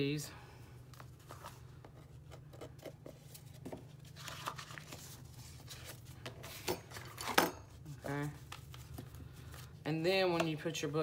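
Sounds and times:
paper rustling: 0.9s - 7.3s.

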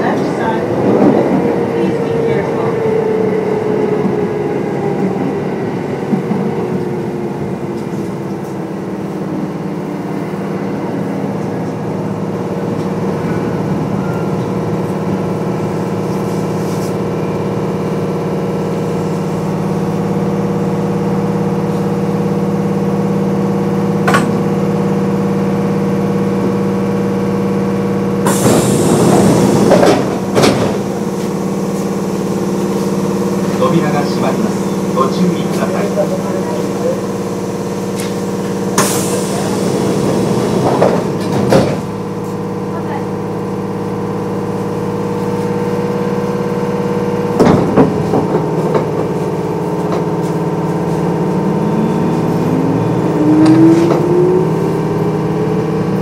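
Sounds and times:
train equipment hum: 0.0s - 56.0s
electric train motor whine: 48.9s - 56.0s.

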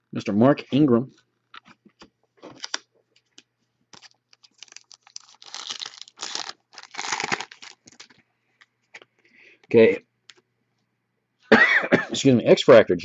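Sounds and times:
crinkling: 1.1s - 9.1s.

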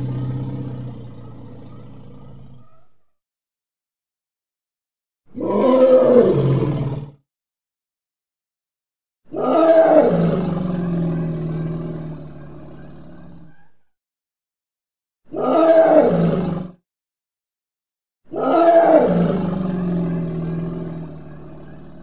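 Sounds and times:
elephant roaring: 0.0s - 2.8s, 5.4s - 7.2s, 9.3s - 13.5s, 15.3s - 16.8s, 18.3s - 22.0s.

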